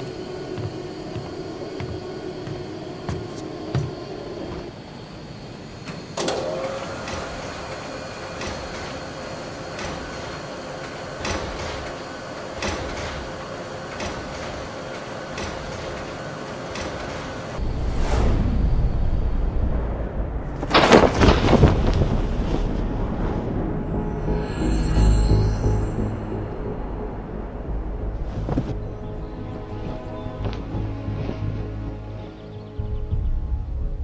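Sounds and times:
steady machine hum: 0.0 - 20.7
low rumble: 17.6 - 32.0.

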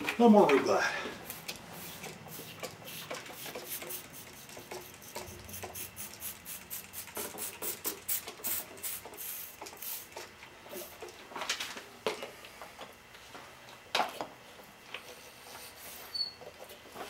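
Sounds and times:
spray bottle hissing spritzes: 1.2 - 10.1.

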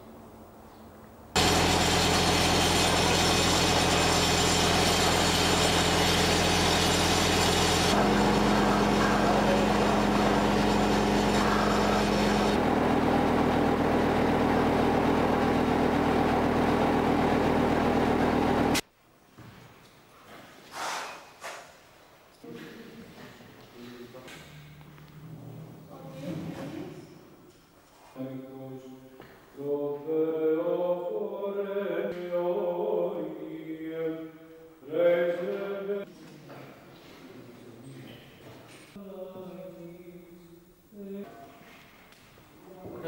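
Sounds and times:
water spraying from hose: 1.4 - 12.6
engine hum: 1.4 - 18.8.

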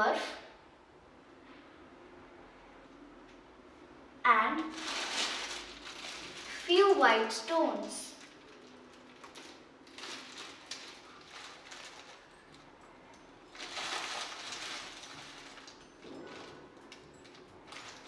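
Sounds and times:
plastic bag of pebbles rustling: 4.6 - 7.0, 7.8 - 12.7, 13.5 - 16.6, 17.3 - 18.0.

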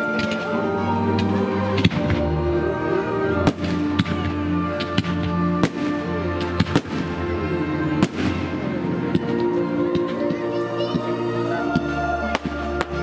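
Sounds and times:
music with held notes: 0.0 - 13.0
fireworks exploding: 3.3 - 10.1.

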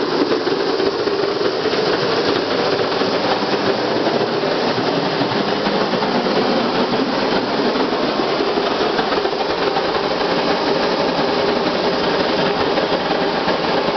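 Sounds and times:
oil burners roaring: 0.0 - 13.9.

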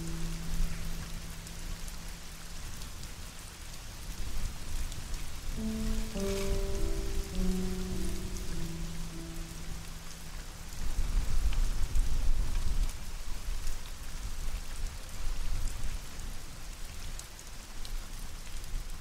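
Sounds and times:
raindrop ticks: 0.0 - 13.0
rain falling: 0.0 - 19.0.

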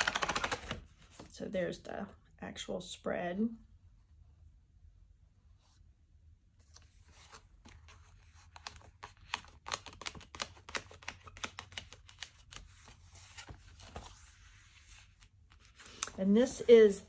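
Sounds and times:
planner pages clicking and rustling: 0.0 - 1.2, 7.6 - 14.2.

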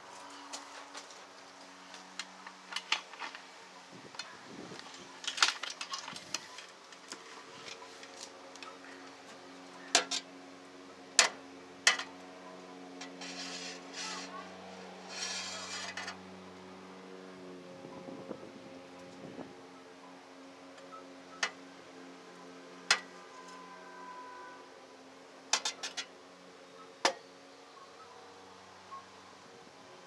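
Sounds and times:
low mechanical hum: 0.0 - 30.0.

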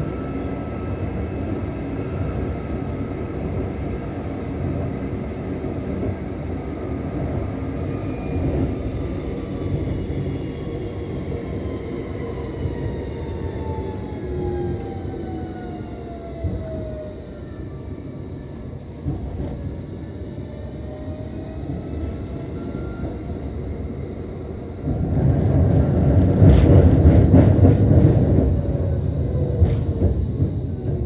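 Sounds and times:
constant high whine: 0.0 - 31.0
tram wheels rumbling on rail: 0.0 - 31.0.

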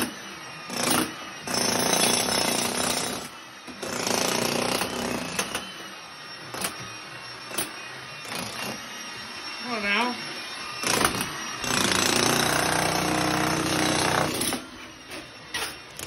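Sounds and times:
demolition hammer chiseling concrete: 0.0 - 5.7, 6.5 - 6.9, 7.5 - 8.8, 10.8 - 16.0.

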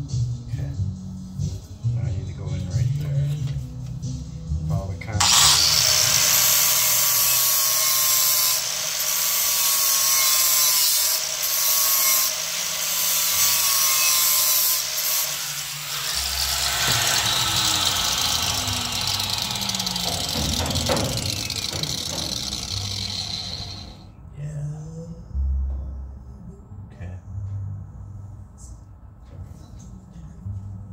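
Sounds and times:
electric grinder on metal: 5.2 - 24.0.

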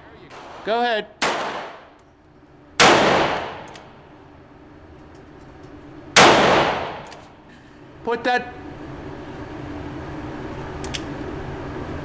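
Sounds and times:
revolver shots echoing: 0.3 - 2.0, 2.8 - 4.0, 6.2 - 7.4.

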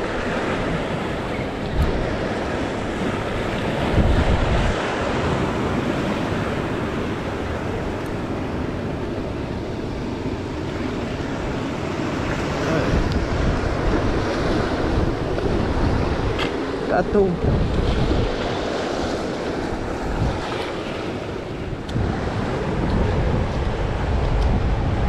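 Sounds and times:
wind buffeting microphone: 0.0 - 25.0
surf breaking over rocks: 10.7 - 25.0.

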